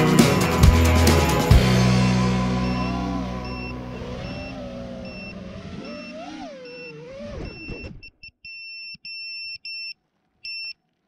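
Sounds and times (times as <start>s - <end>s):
background music: 0.0s - 5.2s
high-pitched buzzer beeps: 2.6s - 9.9s.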